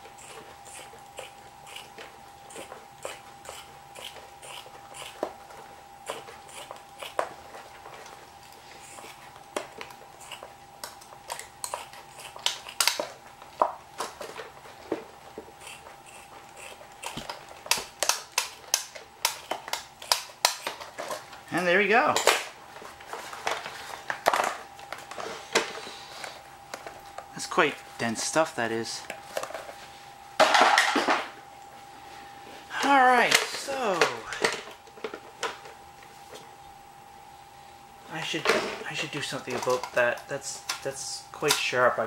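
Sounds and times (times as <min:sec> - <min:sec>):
scissors snipping rubber: 0:10.2 - 0:13.0, 0:15.6 - 0:20.8.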